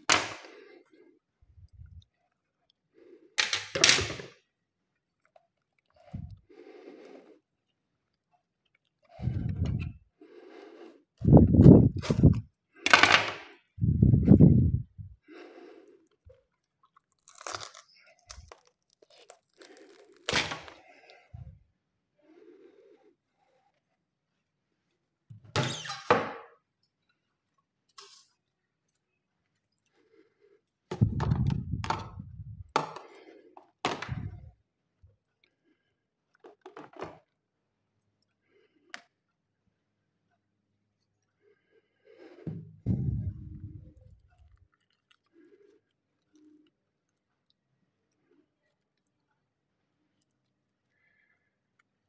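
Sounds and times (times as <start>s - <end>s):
fruit husk crunching and tearing: 16.7s - 21.1s.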